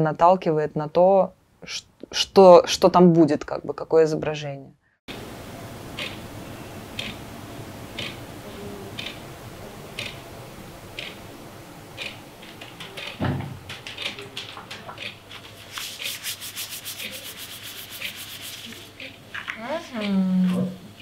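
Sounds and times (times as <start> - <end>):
thump: 13.2 - 13.6
paper towel rubbing: 15.3 - 18.9
hand tool scraping over paper: 15.6 - 18.9.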